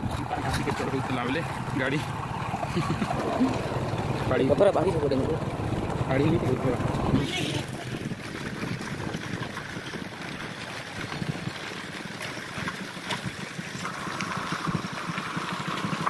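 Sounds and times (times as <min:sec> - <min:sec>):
wind buffeting microphone: 0:00.0 - 0:11.6
vehicle driving on gravel: 0:00.0 - 0:14.4.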